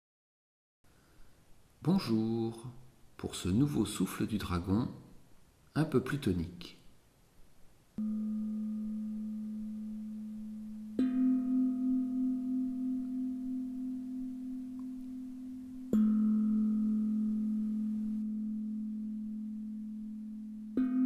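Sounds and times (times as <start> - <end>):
singing bowl ringing: 8.0 - 21.0.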